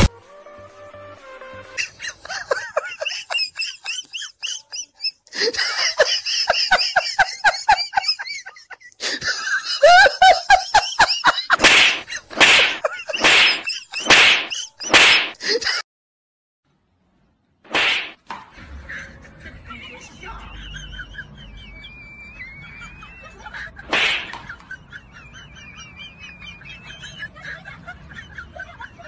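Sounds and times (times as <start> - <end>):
rapid high-pitched laughter: 1.8 - 15.8, 18.7 - 29.0.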